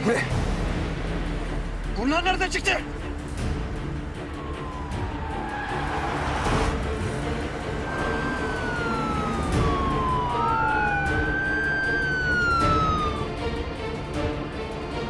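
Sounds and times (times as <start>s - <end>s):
background music with low drone: 0.0s - 15.0s
police siren wailing: 3.8s - 15.0s.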